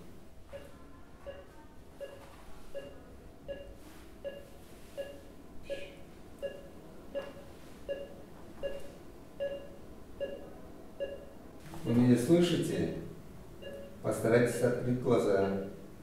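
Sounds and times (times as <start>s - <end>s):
patient monitor beeping: 0.0s - 12.6s, 13.6s - 15.9s.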